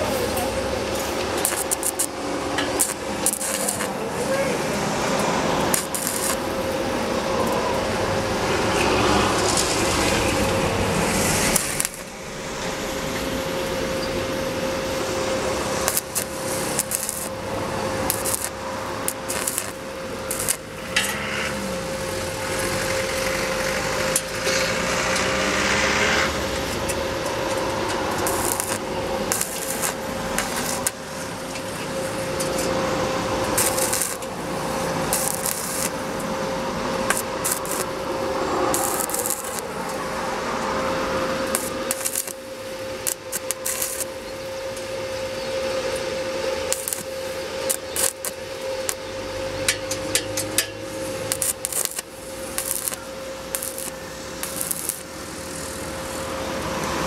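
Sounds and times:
welding arc crackling and sizzling: 0.0 - 57.0
faint hum: 26.4 - 50.1.

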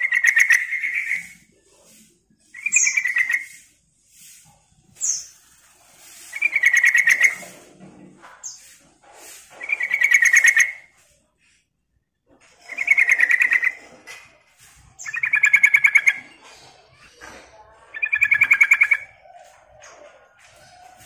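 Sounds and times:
high bird chirp: 0.0 - 1.6, 2.5 - 3.7, 5.0 - 5.6, 6.2 - 7.6, 9.6 - 10.9, 12.6 - 13.9, 14.9 - 21.0.

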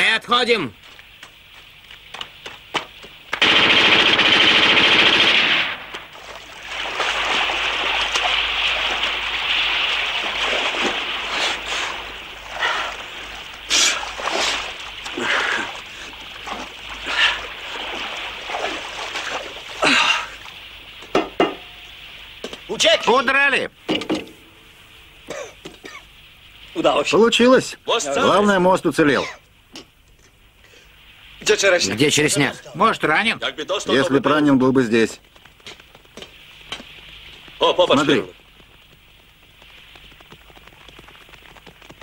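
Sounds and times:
splashing churning water: 1.0 - 23.2, 35.2 - 42.0
machine-gun fire: 3.4 - 6.1
sharp gunshots: 3.4 - 6.1.

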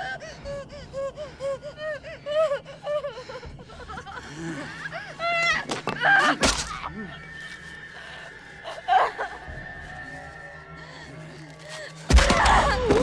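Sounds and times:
woman whimpering and gasping: 0.0 - 6.4.

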